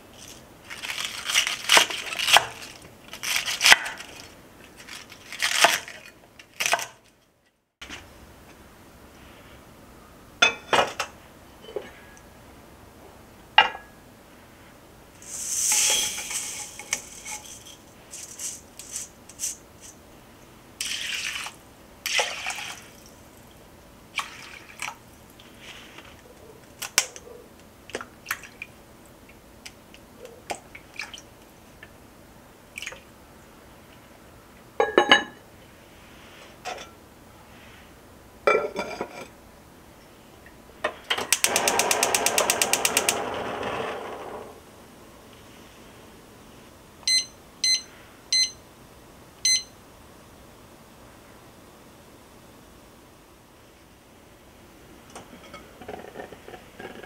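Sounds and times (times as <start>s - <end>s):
gas burner hissing: 15.2s - 18.6s, 41.3s - 44.7s
rice and liquid pouring: 15.2s - 19.1s, 20.8s - 23.5s, 24.1s - 25.8s
wooden spoon stirring and scraping: 15.2s - 20.0s.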